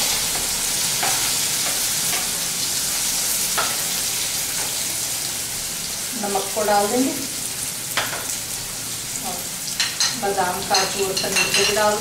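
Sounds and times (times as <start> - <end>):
vegetables sizzling in oil: 0.0 - 12.0.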